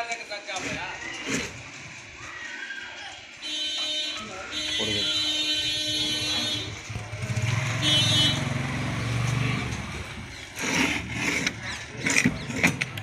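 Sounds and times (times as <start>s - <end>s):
vehicle engine running: 5.9s - 13.0s.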